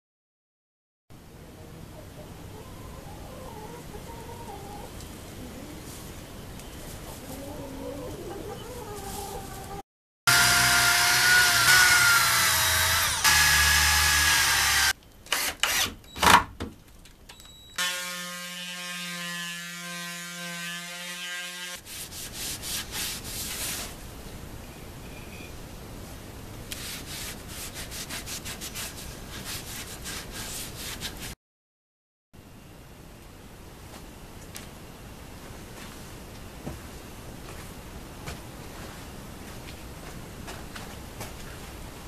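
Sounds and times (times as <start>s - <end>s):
electric sander humming: 10.3s - 14.9s
loud power tool running: 10.3s - 15.0s, 17.8s - 20.0s
scratchy sanding strokes: 21.0s - 24.0s, 26.7s - 31.4s.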